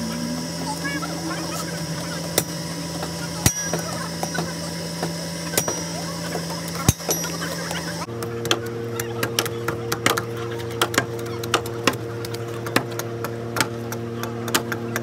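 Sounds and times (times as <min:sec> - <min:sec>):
hammer striking iron on anvil: 0:02.3 - 0:07.7.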